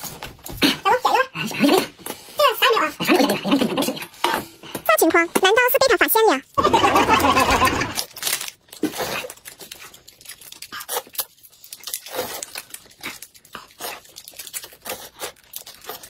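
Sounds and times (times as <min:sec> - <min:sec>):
noodles slurped and chewed: 0:06.8 - 0:16.0
plastic wrappers crinkling and tearing: 0:07.4 - 0:16.0.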